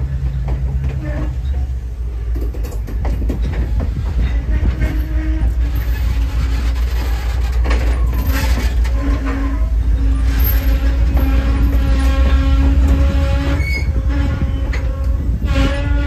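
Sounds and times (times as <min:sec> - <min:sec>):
clicks over rail joints: 0:00.0 - 0:09.7
train wheels rumbling on rails: 0:00.0 - 0:16.0.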